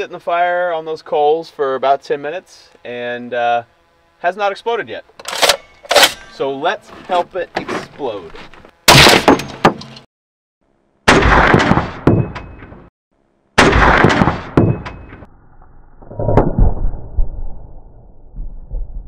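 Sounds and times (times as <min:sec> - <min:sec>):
rifle shots: 0:08.9 - 0:09.3, 0:11.1 - 0:12.2, 0:13.6 - 0:14.9
muffled gunshot: 0:08.9 - 0:09.4, 0:11.1 - 0:12.3, 0:13.6 - 0:14.9.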